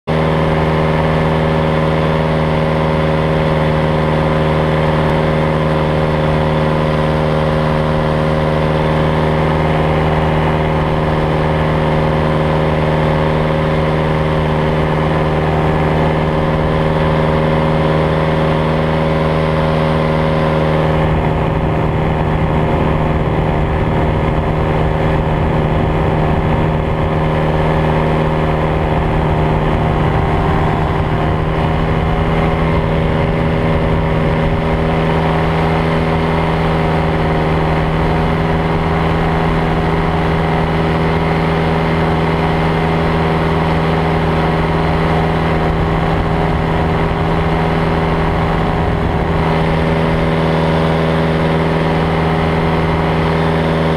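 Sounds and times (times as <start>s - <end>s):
paramotor engine and propeller: 0.0s - 53.9s.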